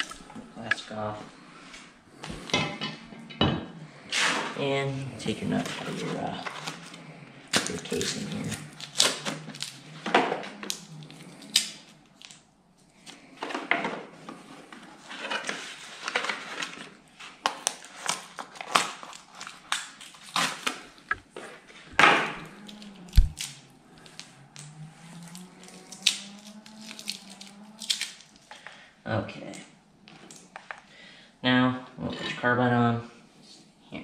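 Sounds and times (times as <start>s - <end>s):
paper packaging crinkling: 5.4s - 10.0s, 15.0s - 24.2s.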